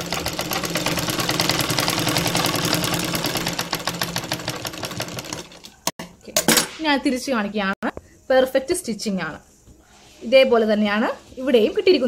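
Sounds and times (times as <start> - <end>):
sewing machine stitching: 0.0 - 5.9.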